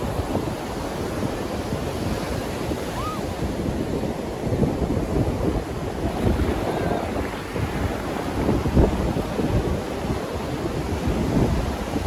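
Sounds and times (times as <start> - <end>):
surf breaking on beach: 0.0 - 12.0
wind buffeting microphone: 0.0 - 12.0.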